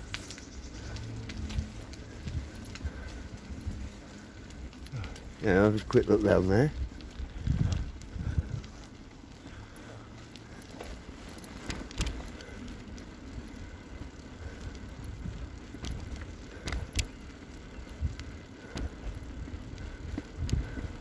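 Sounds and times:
bicycle rattling: 0:00.0 - 0:21.0
bicycle tyres rolling on tarmac: 0:00.0 - 0:21.0
clicks and knocks from bike frame: 0:10.6 - 0:12.7.

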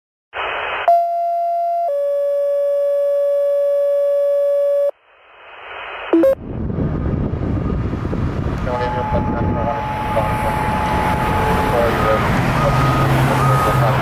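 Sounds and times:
radio hiss: 0:00.4 - 0:00.9, 0:05.0 - 0:06.4, 0:08.6 - 0:14.0
radio static burst: 0:00.4 - 0:00.9, 0:05.0 - 0:06.4, 0:08.6 - 0:14.0
two-tone radio page: 0:00.4 - 0:01.4, 0:04.5 - 0:06.4, 0:08.6 - 0:14.0
brief radio blip: 0:08.6 - 0:14.0.

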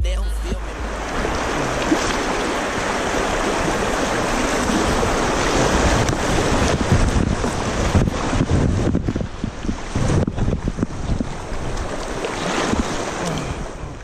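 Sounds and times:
river water rushing over rocks: 0:00.0 - 0:08.5, 0:11.5 - 0:14.0
waves splashing against kayak: 0:00.5 - 0:14.0
wind buffeting microphone: 0:00.6 - 0:14.0.

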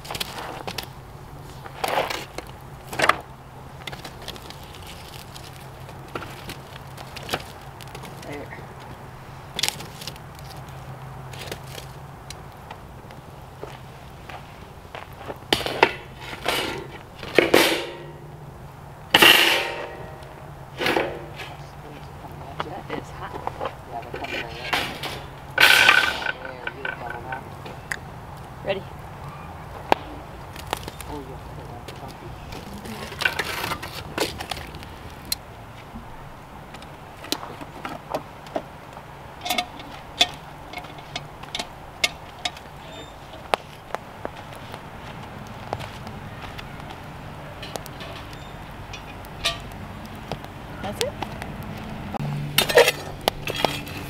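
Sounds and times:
metal tongs scraping: 0:15.5 - 0:18.2, 0:19.2 - 0:21.7, 0:24.0 - 0:27.4, 0:32.9 - 0:34.6, 0:39.4 - 0:43.4, 0:47.6 - 0:49.8, 0:52.5 - 0:54.0
metal grate clanking on steel: 0:15.5 - 0:18.3, 0:19.1 - 0:21.6, 0:24.0 - 0:27.4, 0:39.4 - 0:43.1, 0:47.6 - 0:49.8, 0:52.4 - 0:54.0.

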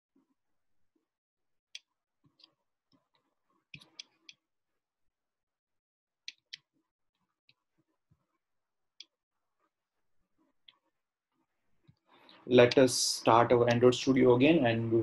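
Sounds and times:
computer mouse clicks: 0:03.7 - 0:04.4.

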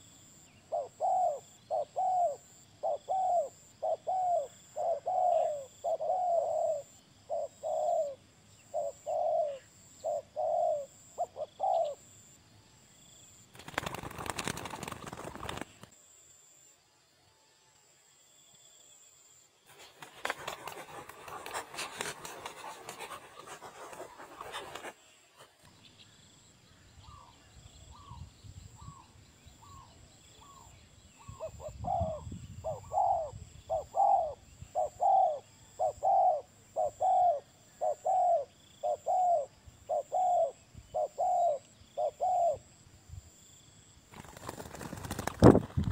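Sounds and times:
dove cooing: 0:00.7 - 0:12.1, 0:19.9 - 0:25.0, 0:29.7 - 0:42.7
rustling noise: 0:19.7 - 0:25.7.

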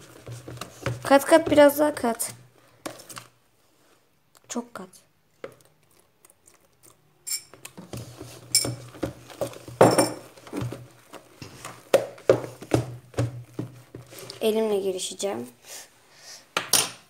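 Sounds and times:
spoon clinking in a bowl: 0:07.2 - 0:07.6.

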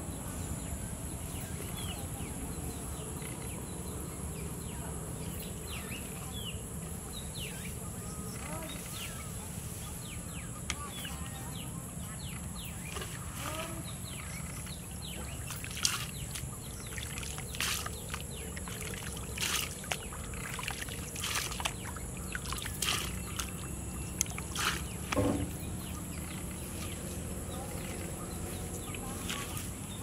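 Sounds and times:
hands swishing through wet grass: 0:15.5 - 0:23.6, 0:24.2 - 0:25.2.

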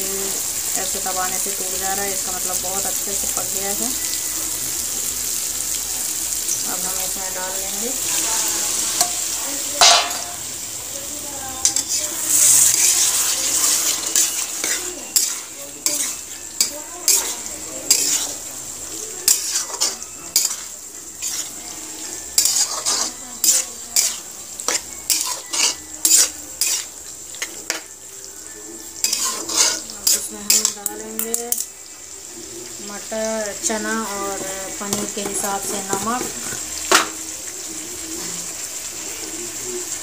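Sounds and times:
gravy sizzling: 0:00.0 - 0:40.0
metal spoon clinking and scraping pan: 0:07.9 - 0:10.5, 0:11.6 - 0:27.9, 0:28.9 - 0:31.7, 0:34.1 - 0:37.2.

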